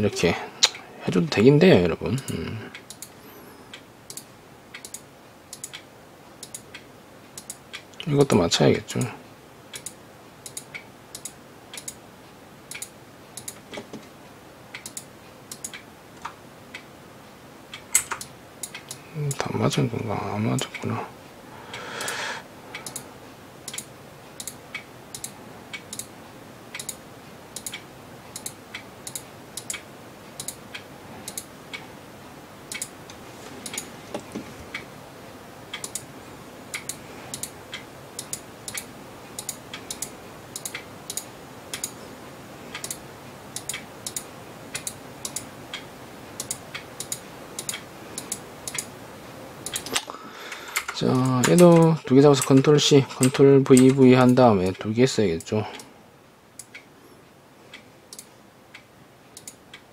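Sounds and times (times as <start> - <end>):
faint steady hiss: 0.0 - 59.9
computer mouse clicking: 2.8 - 3.1, 3.7 - 5.8, 6.4 - 6.8, 7.4 - 7.9, 9.7 - 12.0, 12.7 - 14.1, 14.8 - 16.4, 22.8 - 23.0, 23.7 - 26.1, 26.7 - 27.0, 27.6 - 29.8, 30.4 - 30.6, 31.3 - 31.5, 32.7 - 32.9, 33.6 - 34.8, 35.7 - 36.1, 36.7 - 42.0, 42.7 - 43.0, 43.6 - 45.8, 46.4 - 48.9, 49.6 - 50.1, 59.4 - 59.8.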